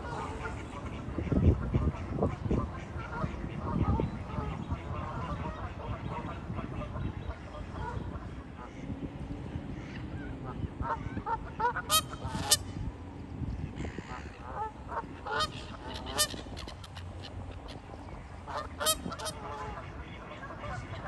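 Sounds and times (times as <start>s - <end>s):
geese honking: 9.8s - 12.8s, 13.8s - 21.0s.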